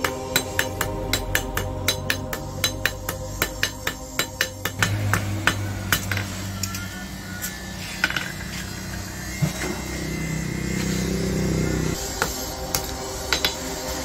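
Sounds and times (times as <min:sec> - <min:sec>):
hammer blows on anvil: 0:00.0 - 0:06.8
low motor hum: 0:04.7 - 0:12.0.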